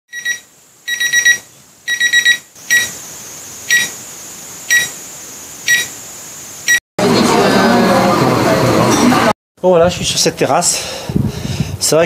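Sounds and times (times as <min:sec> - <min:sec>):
digital alarm clock beeping: 0:00.1 - 0:03.0, 0:03.7 - 0:03.9, 0:04.7 - 0:04.9, 0:05.7 - 0:05.9.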